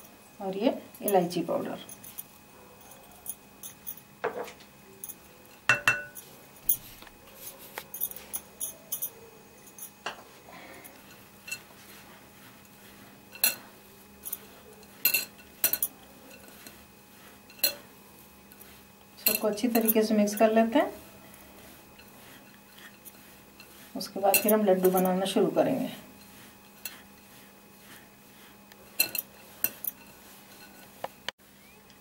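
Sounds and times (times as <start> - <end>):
utensils clinking on glass bowl: 2.9 - 6.9, 10.9 - 11.7, 13.3 - 16.7, 19.2 - 20.6, 23.0 - 25.3, 29.0 - 30.9.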